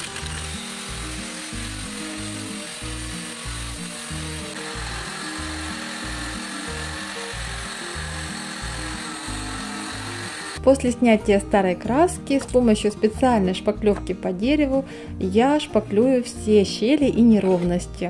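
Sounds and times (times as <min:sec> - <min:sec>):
angle grinder cutting metal: 0:00.0 - 0:10.6
drill sanding paint off wood: 0:00.0 - 0:10.6.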